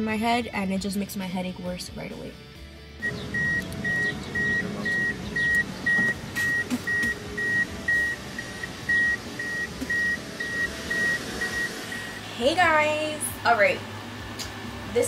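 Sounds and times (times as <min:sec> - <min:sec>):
car warning beeps: 0:03.0 - 0:12.6.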